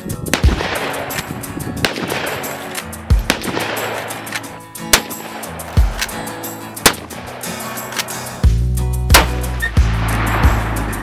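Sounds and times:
background music: 0.0 - 11.0
rifle shots with echo: 0.3 - 6.2, 6.8 - 8.1, 9.1 - 10.6.

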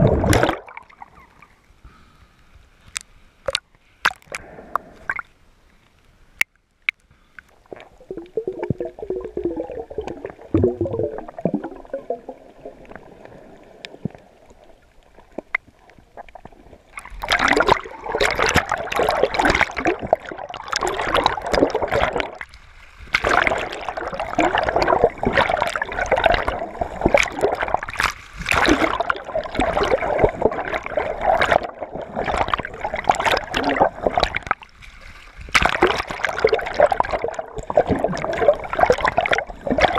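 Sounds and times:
underwater splashes and bubbles: 0.0 - 1.8, 2.8 - 39.9
water sloshing and gurgling: 0.0 - 1.8, 6.9 - 39.9.

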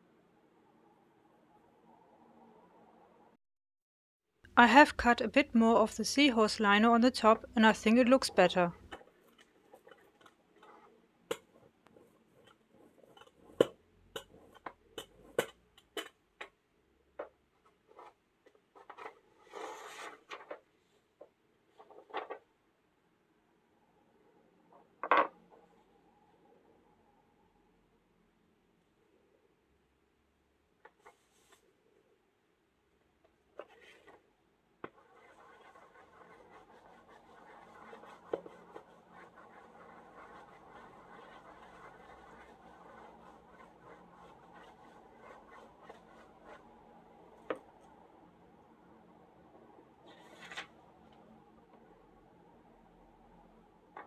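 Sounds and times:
baren rubbing over paper: 18.8 - 20.3, 34.9 - 47.5.

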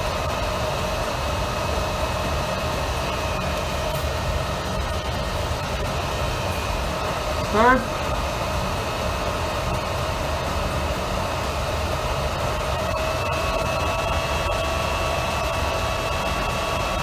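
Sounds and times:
chiller whirring hum: 0.0 - 17.0
whining tones: 0.0 - 17.0.

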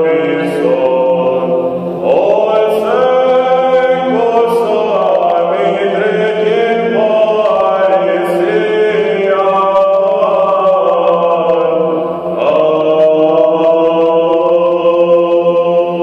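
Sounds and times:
held drone note: 0.0 - 16.0
unaccompanied chant singing: 0.0 - 16.0.

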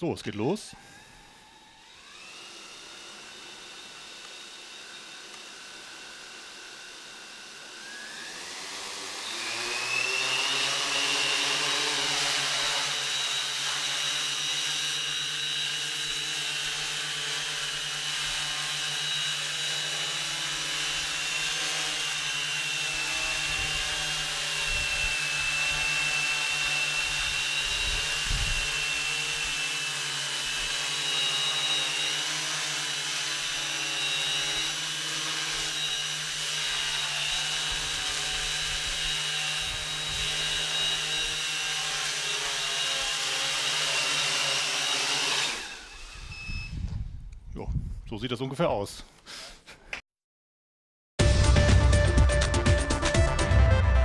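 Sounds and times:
drone propellers whining: 0.7 - 46.9.

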